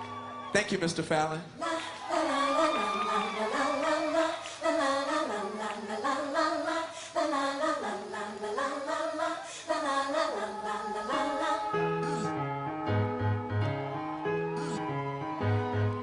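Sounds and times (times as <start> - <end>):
voices singing a cappella: 1.6 - 12.4.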